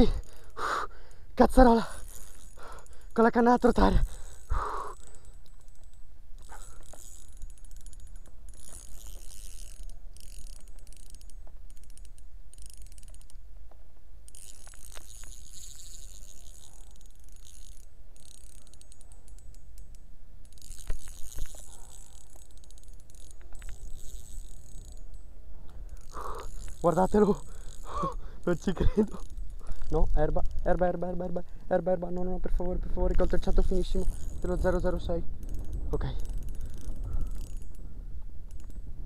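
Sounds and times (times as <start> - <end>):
fishing reel whirring and clicking: 0.0 - 39.0
wind rumble on microphone: 29.3 - 39.0.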